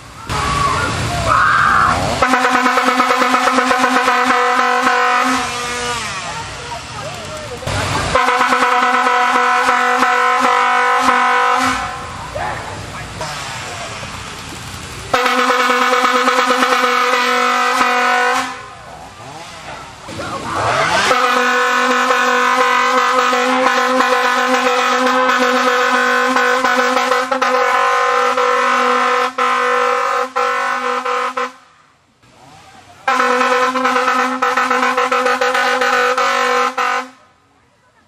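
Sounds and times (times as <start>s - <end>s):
air horn blasts: 1.9s - 6.4s, 8.1s - 12.3s, 15.1s - 19.4s, 20.6s - 31.7s, 33.0s - 37.4s.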